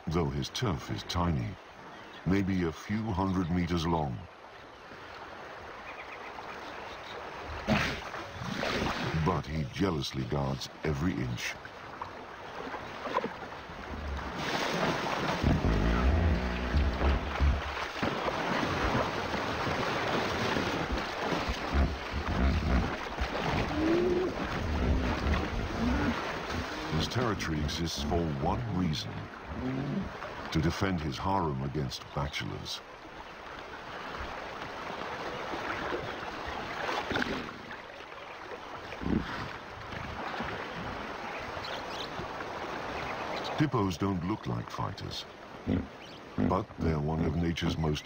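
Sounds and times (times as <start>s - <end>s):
heavy water splashing: 6.4s - 31.3s, 33.5s - 46.7s
hippos rumbling: 12.6s - 31.3s, 38.9s - 39.6s, 44.6s - 48.0s
heavy deep splash: 13.8s - 27.1s.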